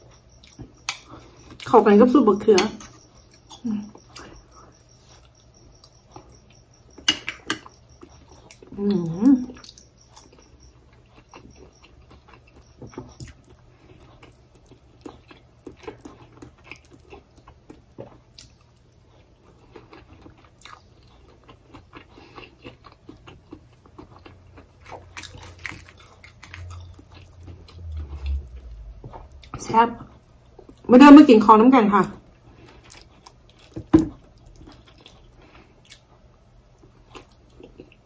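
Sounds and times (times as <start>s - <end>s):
person chewing wetly: 7.6s - 8.8s, 9.5s - 30.9s, 32.2s - 38.0s.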